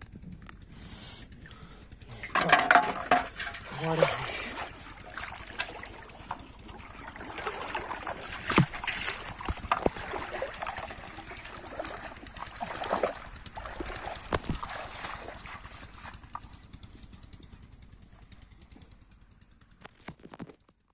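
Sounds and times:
water splashing while wading: 0:02.1 - 0:16.8.

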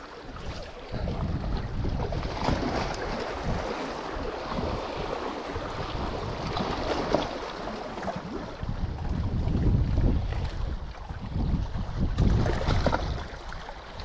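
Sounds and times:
wind gusting across microphone: 0:00.0 - 0:13.6
choppy sea against rocks: 0:00.0 - 0:14.0.

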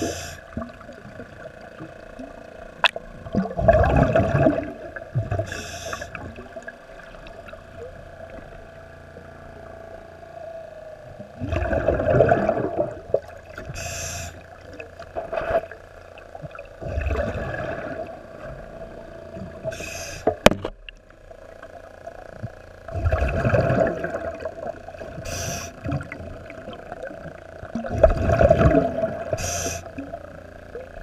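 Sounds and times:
regulator inhale hiss: 0:00.0 - 0:00.6, 0:05.4 - 0:06.4, 0:13.7 - 0:14.4, 0:19.6 - 0:20.5, 0:25.1 - 0:26.0, 0:29.3 - 0:30.0
exhaled bubbles rumbling: 0:00.0 - 0:10.2, 0:11.0 - 0:31.0
steady hum: 0:00.0 - 0:31.0.

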